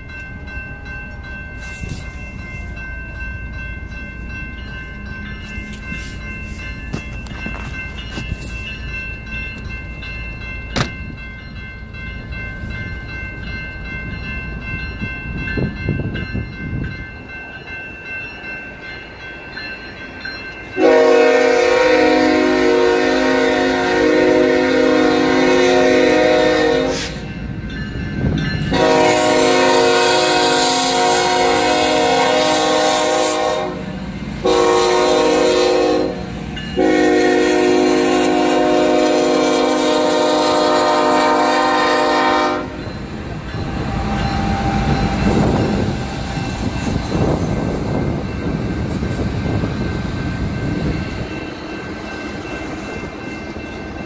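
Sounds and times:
low rumble of train: 0.0s - 54.0s
locomotive air horn: 20.8s - 27.3s, 28.7s - 42.8s.

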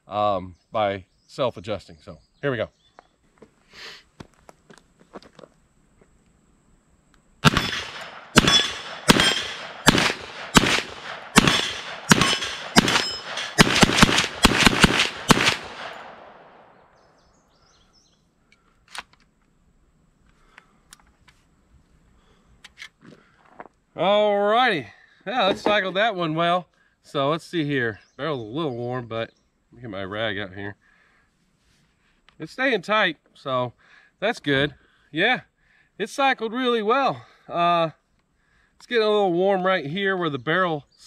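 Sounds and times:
rifle gunshots: 7.4s - 16.9s.

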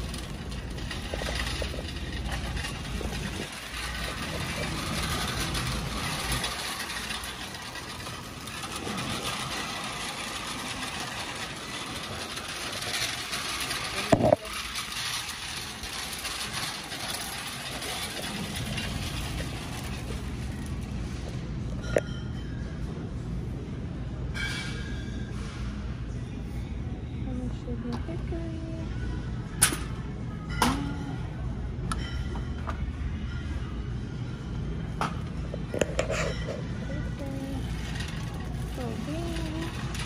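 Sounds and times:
shopping cart rolling: 0.0s - 22.9s, 24.3s - 25.8s, 34.4s - 40.0s.

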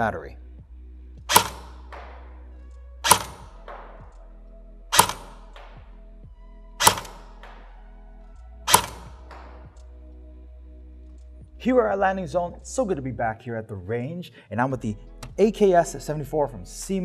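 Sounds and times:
background music: 0.0s - 17.0s
airsoft rifle shots: 1.3s - 2.3s, 3.0s - 4.0s, 4.9s - 5.8s, 6.8s - 7.7s, 8.7s - 9.6s.

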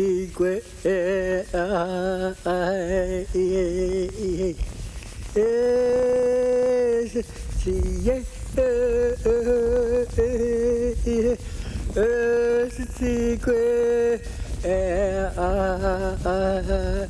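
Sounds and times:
person singing chant-like song: 0.0s - 17.0s.

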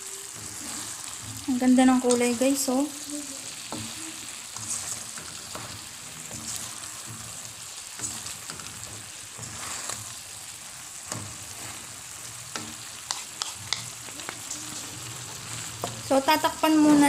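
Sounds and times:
vegetables sizzling in a wok: 0.0s - 17.0s
spatula scraping a pan: 0.2s - 17.0s.

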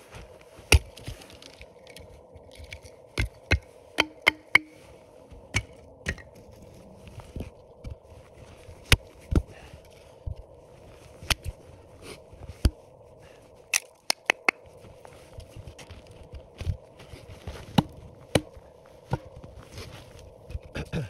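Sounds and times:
hatchet chopping firewood: 0.7s - 1.1s, 3.2s - 4.8s, 13.7s - 14.6s, 17.7s - 19.2s.

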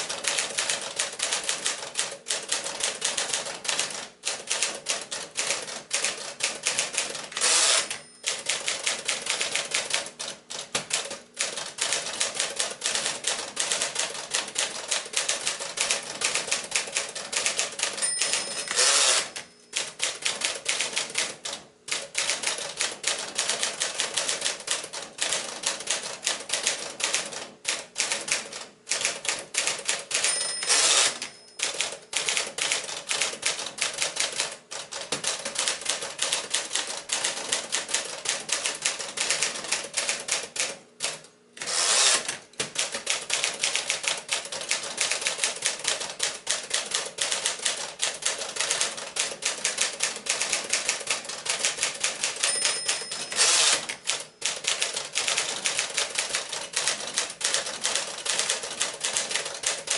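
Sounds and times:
typewriter carriage return: 5.4s - 10.0s, 10.6s - 21.4s, 28.0s - 59.9s
typewriter bell ding: 7.4s - 8.6s, 17.8s - 20.0s, 30.2s - 32.0s, 52.2s - 54.6s.

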